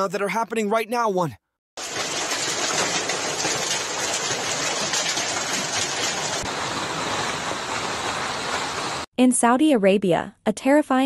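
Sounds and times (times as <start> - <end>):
hail and heavy rain pelting: 1.8 - 9.1.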